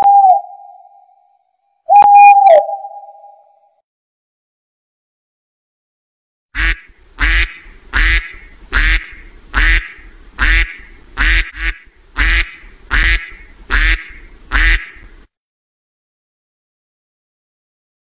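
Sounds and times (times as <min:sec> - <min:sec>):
duck quacking: 0:06.6 - 0:15.0.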